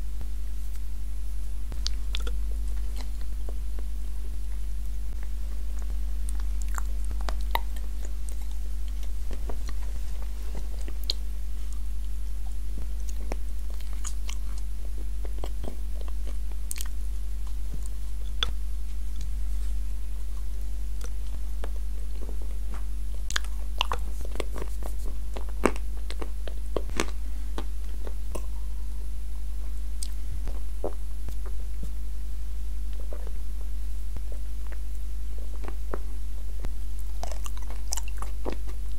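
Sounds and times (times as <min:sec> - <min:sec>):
steady low hum: 0:00.0 - 0:38.9
wet mouth clicks: 0:01.7 - 0:03.9
biting and chewing cookie: 0:01.7 - 0:28.8, 0:32.9 - 0:38.9.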